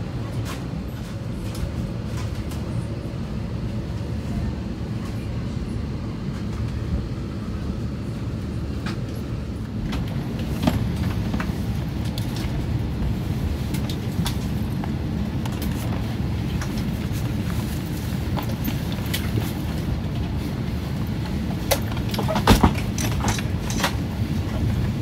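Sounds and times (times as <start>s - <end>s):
airliner cabin rumble: 0.0s - 25.0s.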